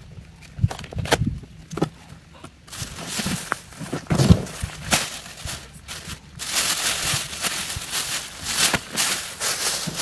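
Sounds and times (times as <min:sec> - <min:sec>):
plastic wrapping crinkling: 0:02.7 - 0:10.0.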